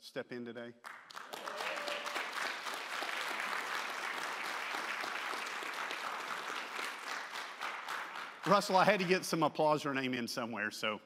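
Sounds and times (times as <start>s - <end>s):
crowd clapping: 0.8s - 9.4s.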